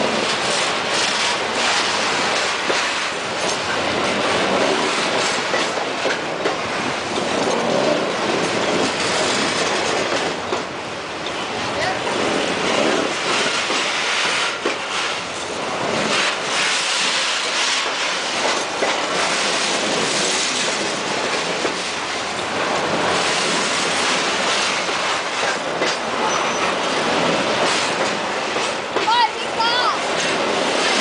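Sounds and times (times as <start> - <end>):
train wheels clattering on rails: 0.0 - 31.0
wheel squeal: 26.2 - 26.8.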